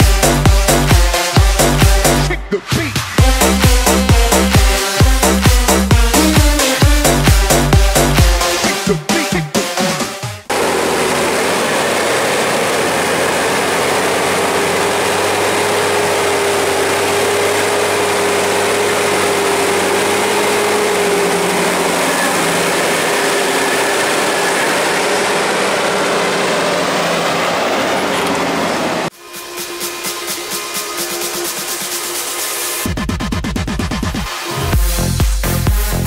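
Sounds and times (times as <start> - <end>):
tractor running under load: 10.5 - 29.1.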